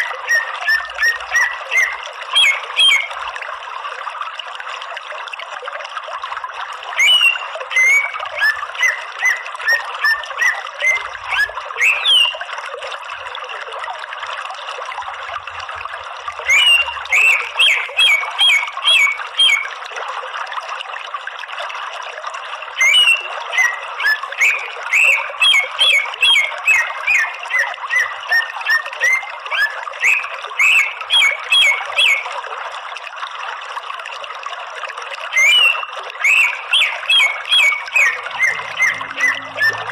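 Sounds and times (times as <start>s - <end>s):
bird chattering song: 0.0s - 3.2s, 7.0s - 12.4s, 16.5s - 19.7s, 22.8s - 32.3s, 35.3s - 39.9s.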